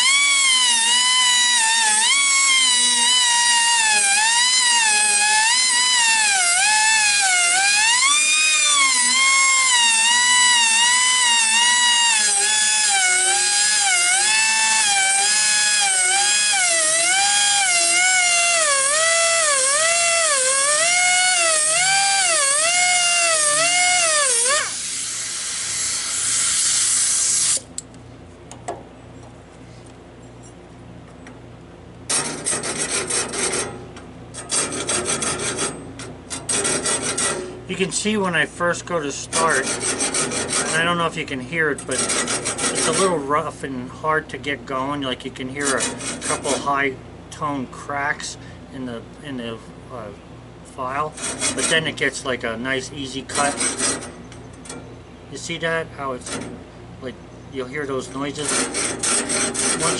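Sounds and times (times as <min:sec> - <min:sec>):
rotary grinder whining: 0:00.0 - 0:27.6, 0:58.2 - 0:59.9
hand file rasping: 0:58.4 - 0:59.9.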